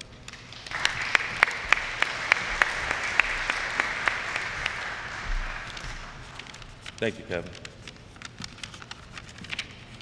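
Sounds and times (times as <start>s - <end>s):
audience applauding: 0.3s - 7.0s
sharp close claps: 0.3s - 7.1s.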